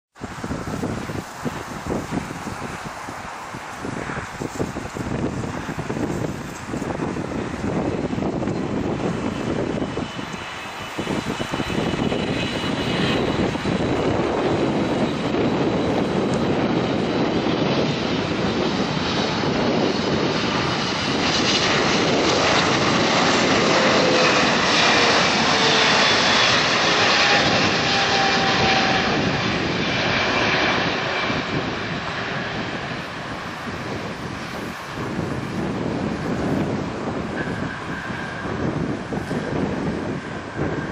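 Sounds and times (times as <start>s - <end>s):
jet engine roar: 0.1s - 40.9s
engine whine falling in pitch: 7.9s - 33.0s.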